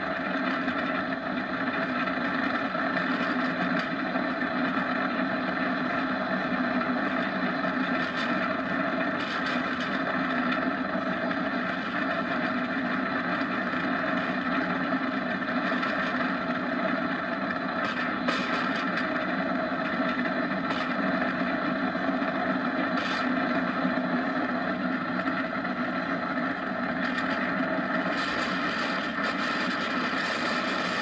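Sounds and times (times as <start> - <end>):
kart rolling fast on asphalt: 0.0 - 31.0.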